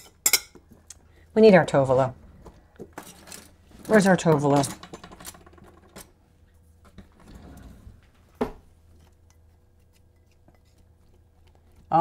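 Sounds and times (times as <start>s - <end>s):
spatula scraping glass bowl: 9.3s - 11.1s.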